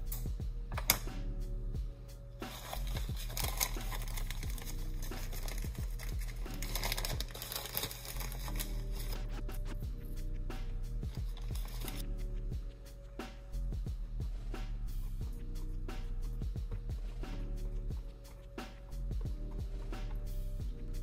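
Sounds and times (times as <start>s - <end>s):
background music with low tones: 0.0s - 21.0s
plastic bag crinkling: 2.5s - 9.2s.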